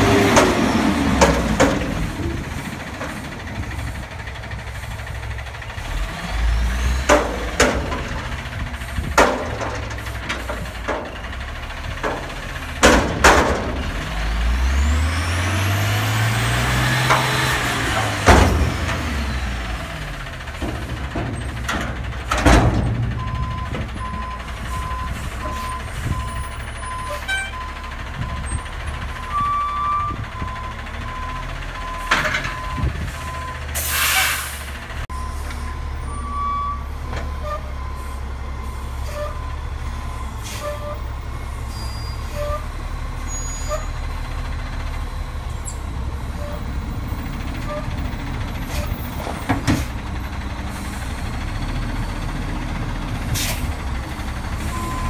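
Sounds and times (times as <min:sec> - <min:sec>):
diesel engine revving and idling: 0:00.0 - 0:55.0
steel bin banging: 0:07.1 - 0:08.4, 0:11.9 - 0:14.0, 0:17.0 - 0:19.4, 0:20.6 - 0:24.0
reversing alarm beeping: 0:23.2 - 0:33.7, 0:35.1 - 0:42.6, 0:54.6 - 0:55.0
air brakes hissing: 0:33.7 - 0:34.8, 0:40.4 - 0:42.6, 0:48.6 - 0:50.0, 0:53.2 - 0:53.8.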